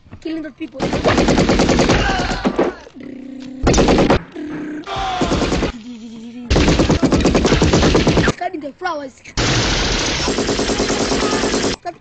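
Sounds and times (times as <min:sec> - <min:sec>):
automatic gunfire bursts: 0:00.8 - 0:02.1, 0:06.5 - 0:08.4, 0:09.4 - 0:11.8.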